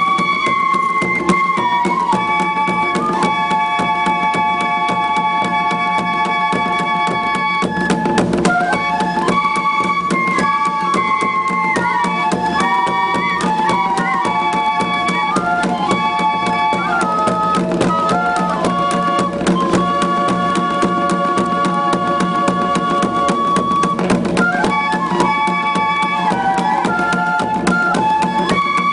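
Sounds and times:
bamboo flutes playing chords: 0.0s - 28.9s
fast steady drumbeat: 0.0s - 28.9s.

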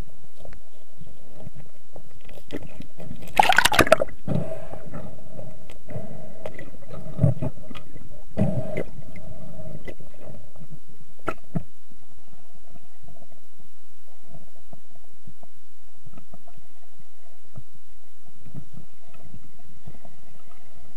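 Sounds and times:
muffled underwater bubbling: 3.0s - 10.6s.

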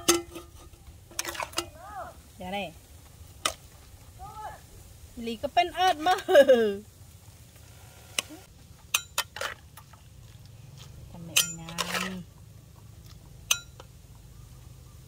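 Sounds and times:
metal spoon clinking on pots: 0.0s - 1.7s, 8.8s - 9.6s, 11.3s - 12.3s, 13.4s - 14.0s.

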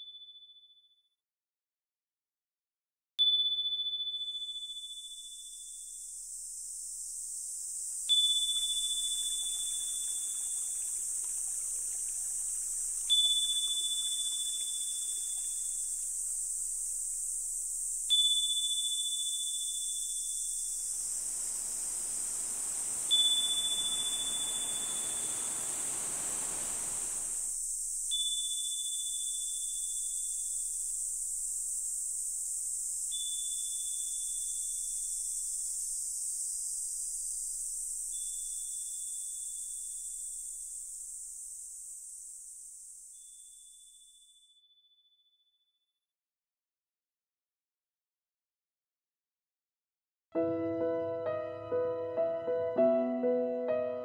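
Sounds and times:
steady high hiss: 4.7s - 44.2s
high chime-like tone: 23.1s - 25.7s.

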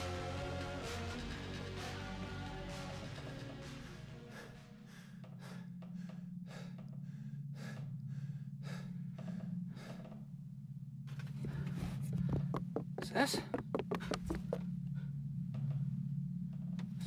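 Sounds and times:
steady low hum: 0.0s - 17.0s
person breathing heavily: 3.2s - 10.4s, 11.3s - 15.2s.

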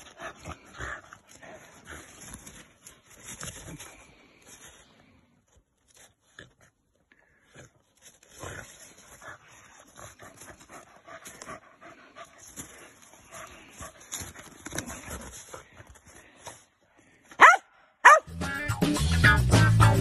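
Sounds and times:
dog panting: 8.4s - 15.9s
dog yipping: 17.4s - 18.3s.

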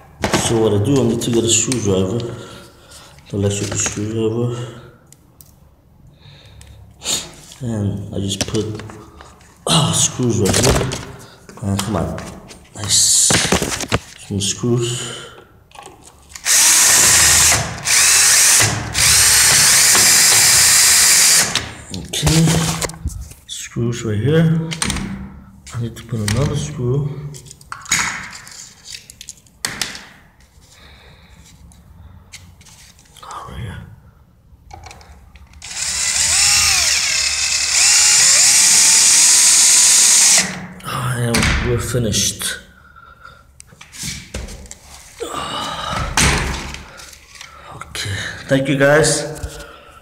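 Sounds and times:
cordless drill driving a screw: 16.4s - 21.6s, 35.6s - 40.6s.

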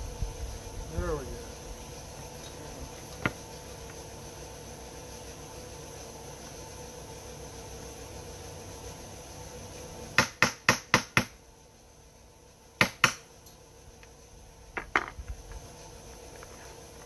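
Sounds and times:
hammer striking metal rivets: 10.2s - 11.3s, 12.8s - 13.2s.

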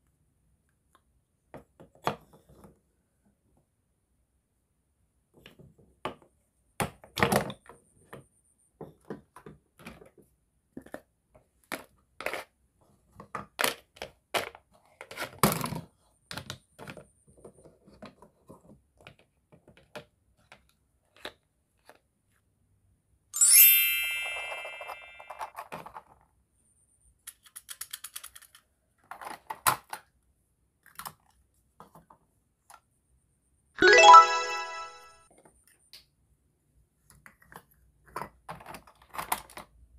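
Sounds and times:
bright ringing chime: 23.4s - 25.4s, 33.8s - 35.2s.

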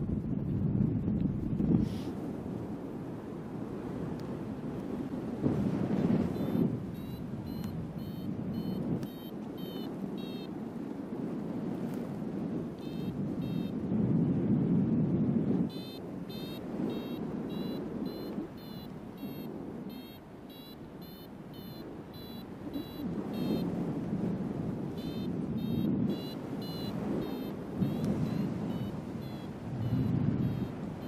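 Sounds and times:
wind rushing on microphone: 0.0s - 31.0s
short high beeps: 6.3s - 10.5s, 12.8s - 13.8s, 15.7s - 23.7s, 24.9s - 31.0s.

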